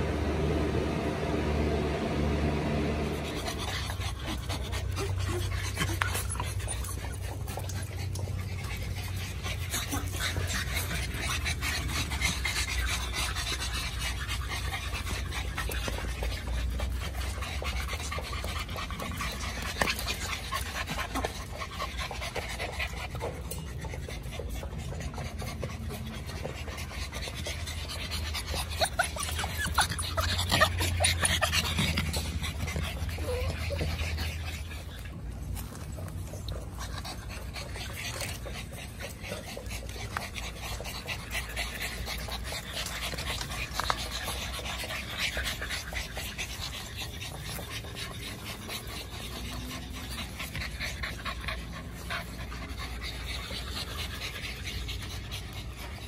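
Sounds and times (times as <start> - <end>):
low hum: 0.0 - 21.1
puppies panting: 0.0 - 56.0
light clicks and scratches: 4.2 - 56.0.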